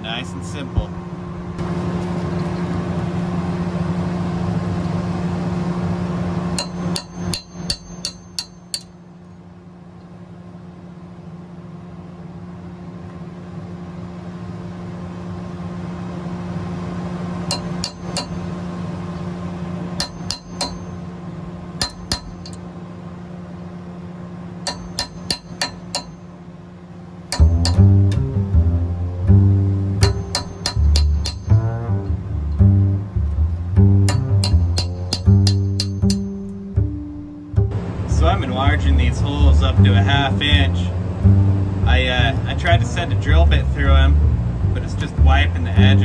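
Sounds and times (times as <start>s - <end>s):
steady low hum: 0.0s - 46.0s
hammer striking steel punch: 6.6s - 9.0s, 17.5s - 18.5s, 20.0s - 21.1s, 21.8s - 22.6s, 24.6s - 26.3s, 27.3s - 28.2s, 30.0s - 31.9s, 34.0s - 37.7s.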